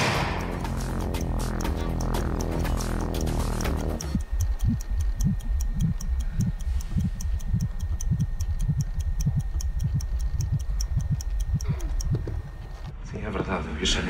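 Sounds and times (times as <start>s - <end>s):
music: 0.0s - 5.4s
clock-like ticking: 0.0s - 13.0s
deep low pulses: 0.0s - 13.0s.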